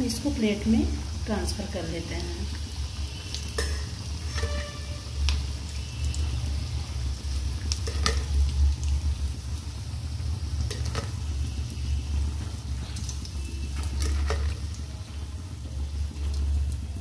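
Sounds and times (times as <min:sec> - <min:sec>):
fritters deep-frying in oil: 0:00.0 - 0:17.0.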